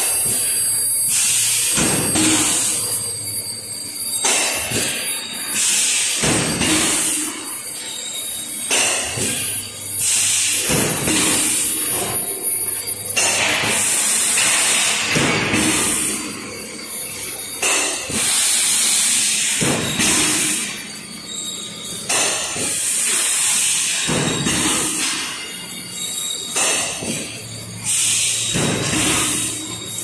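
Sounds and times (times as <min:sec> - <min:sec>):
production line mechanical din: 0:00.0 - 0:30.0.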